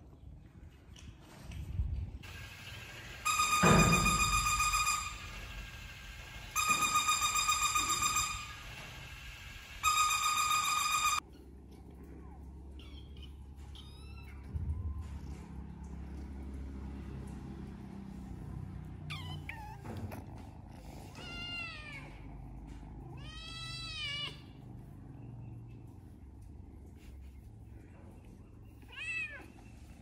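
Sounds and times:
kittens mewing: 0:19.0 - 0:24.6.

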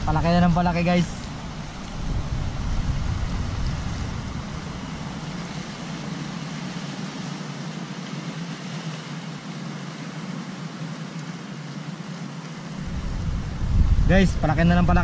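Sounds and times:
wind noise on microphone: 0:00.0 - 0:06.2, 0:12.8 - 0:15.0
sea surf against rocks: 0:00.0 - 0:15.0.

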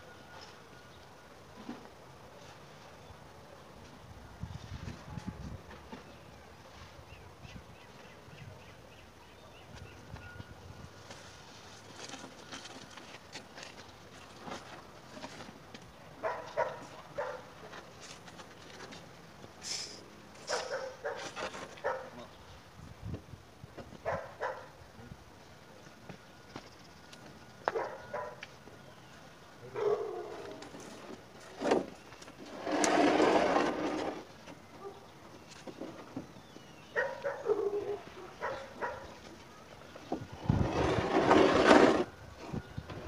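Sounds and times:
dog barking: 0:16.2 - 0:17.5, 0:20.4 - 0:22.2, 0:24.0 - 0:24.7, 0:27.7 - 0:28.4, 0:29.7 - 0:30.4, 0:36.9 - 0:39.2
concrete joist scraping: 0:19.7 - 0:21.9, 0:30.4 - 0:34.5, 0:40.4 - 0:43.0.

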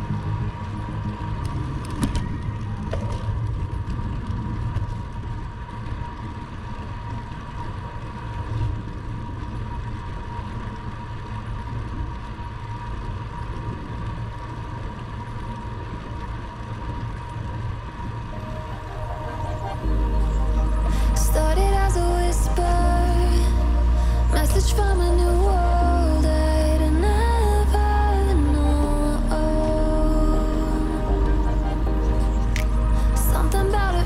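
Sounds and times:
bicycle tyres rolling on pavement: 0:00.0 - 0:34.0
high-pitched hum: 0:18.2 - 0:34.0.

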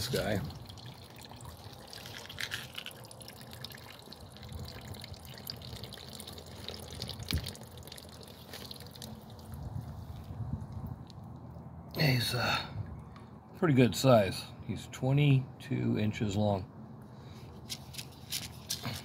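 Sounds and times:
water dripping and trickling: 0:00.0 - 0:11.7.

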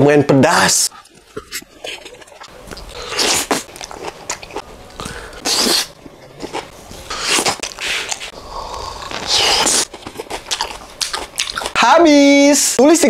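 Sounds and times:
mouth chewing noises: 0:00.9 - 0:11.8.

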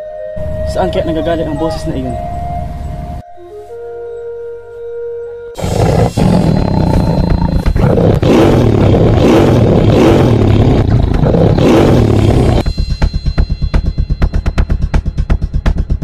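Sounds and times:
tiger roaring: 0:05.6 - 0:12.6
fast electronic drum beat: 0:09.2 - 0:16.0.

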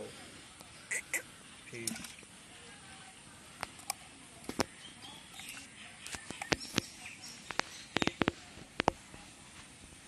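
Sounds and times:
faint bird chirps: 0:04.6 - 0:08.4.

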